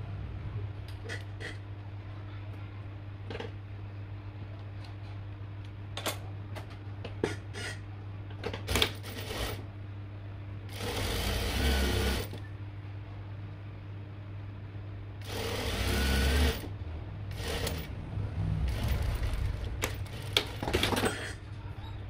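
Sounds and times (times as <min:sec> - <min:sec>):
low motor hum: 0:09.8 - 0:22.0
sewing machine stitching: 0:10.8 - 0:12.3, 0:15.2 - 0:16.7.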